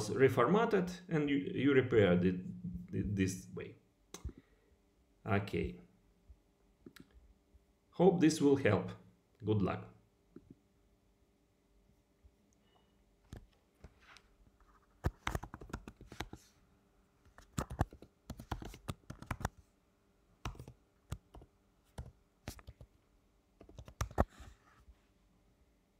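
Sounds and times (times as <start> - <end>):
keyboard keys clicking: 17.4 - 19.5, 20.4 - 22.9, 23.6 - 24.3.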